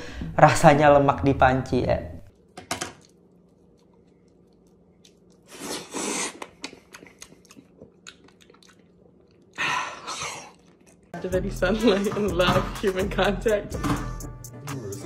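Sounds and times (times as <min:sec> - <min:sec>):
wet chewing: 0:02.3 - 0:11.2.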